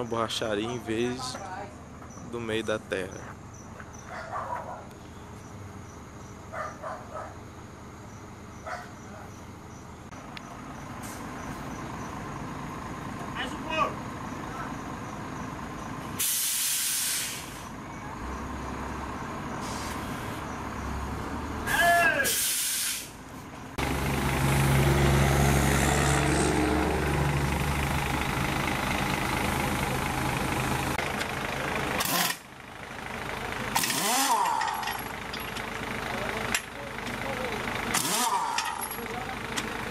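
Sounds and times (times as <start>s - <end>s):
heavy truck passing: 0.0s - 39.9s
compressed air hissing: 16.2s - 17.7s, 19.6s - 20.4s, 22.2s - 23.2s.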